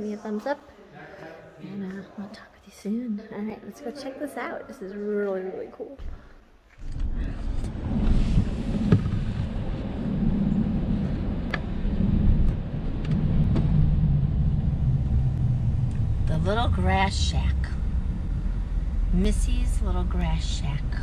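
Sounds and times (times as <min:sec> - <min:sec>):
car road and engine rumble: 0:07.3 - 0:21.0.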